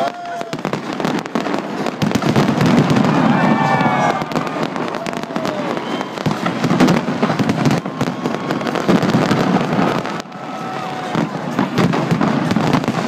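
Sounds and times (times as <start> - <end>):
fireworks cracking and banging: 0.0 - 13.0.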